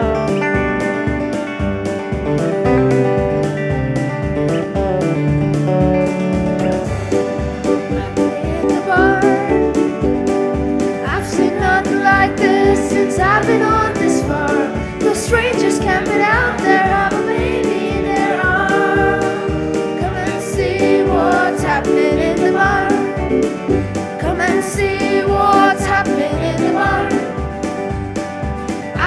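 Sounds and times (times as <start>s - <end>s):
acoustic guitar: 0.0s - 29.0s
keyboard: 0.0s - 29.0s
boys' choir singing: 11.1s - 23.4s, 24.2s - 27.4s.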